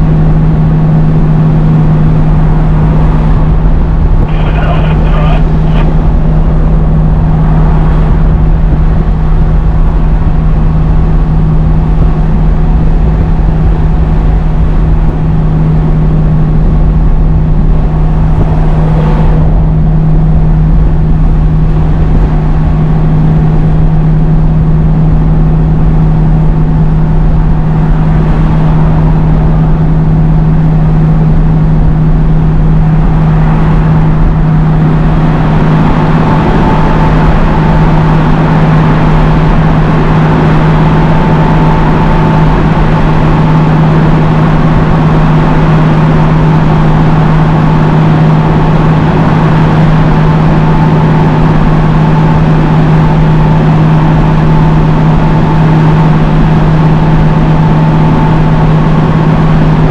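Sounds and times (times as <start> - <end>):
truck engine droning: 0.0 - 59.9.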